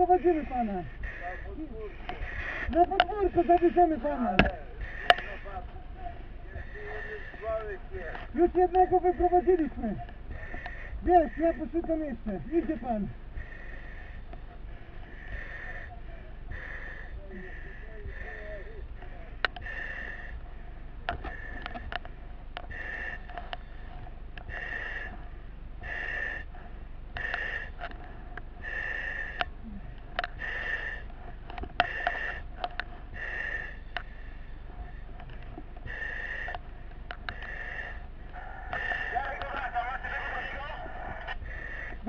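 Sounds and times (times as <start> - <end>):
sharp clicks and knocks: 18.9 - 20.4, 21.0 - 25.2, 27.1 - 28.5, 29.3 - 33.2
breathing through mask valve hissing: 19.6 - 20.4, 22.7 - 23.3, 24.5 - 35.1, 35.8 - 36.6, 37.3 - 39.2, 40.4 - 42.0.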